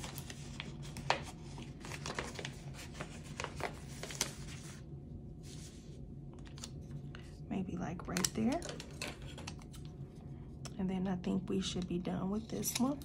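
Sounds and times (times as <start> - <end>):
stickers and paper crinkling: 0.0 - 4.8, 5.5 - 10.0.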